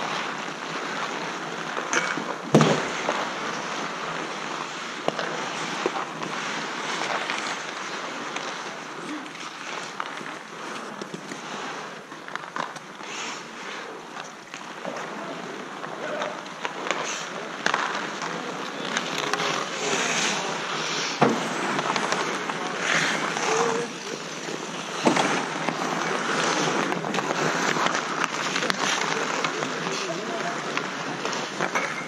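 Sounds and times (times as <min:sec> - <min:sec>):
skates scraping on ice: 0:00.0 - 0:32.0
knocks against rink boards: 0:01.7 - 0:04.4, 0:15.8 - 0:32.0.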